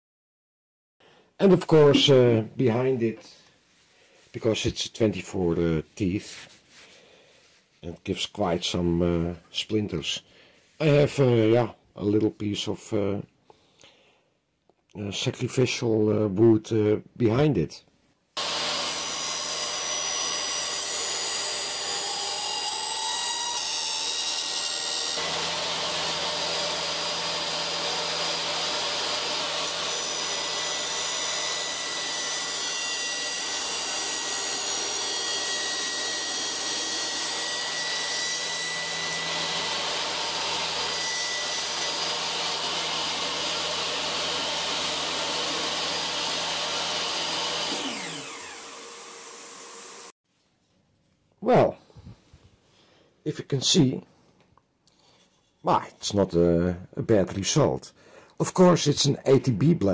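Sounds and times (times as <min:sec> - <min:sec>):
table saw cutting wood: 0:18.4 - 0:50.2.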